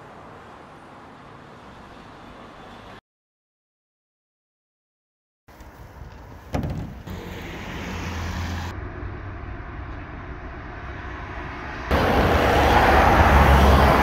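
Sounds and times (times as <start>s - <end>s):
low traffic rumble: 5.5s - 14.0s.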